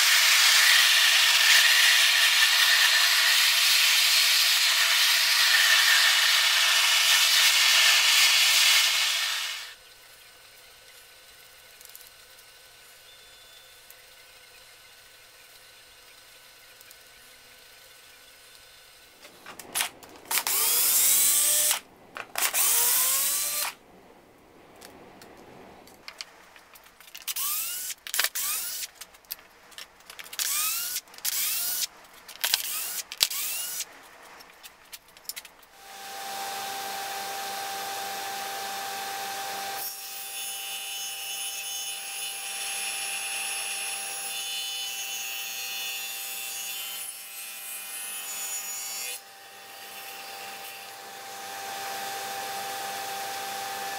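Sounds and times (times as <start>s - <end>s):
table saw cutting wood: 0.0s - 9.8s, 20.3s - 21.8s, 22.4s - 23.8s, 35.8s - 53.9s
table saw running: 0.0s - 9.8s, 35.8s - 41.2s
cordless drill driving screws: 27.3s - 28.9s, 30.4s - 31.9s, 32.5s - 33.8s.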